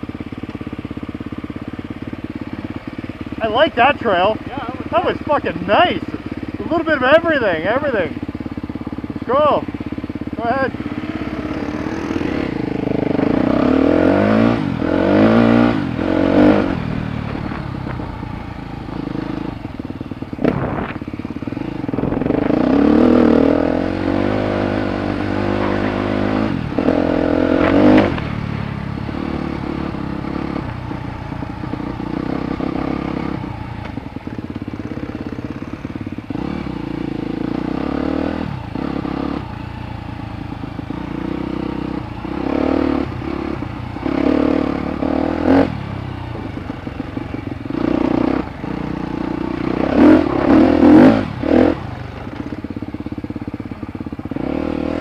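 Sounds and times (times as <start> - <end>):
dirt bike engine revving: 1.0 - 55.0.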